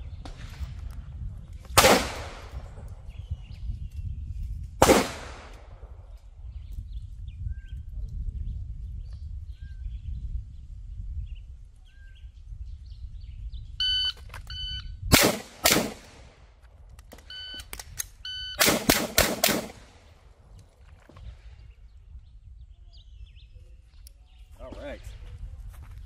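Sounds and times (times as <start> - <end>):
pistol shots: 1.8 - 2.6, 4.8 - 5.7, 15.1 - 16.3, 18.6 - 20.0
shot timer beep: 13.8 - 14.9, 17.3 - 18.6.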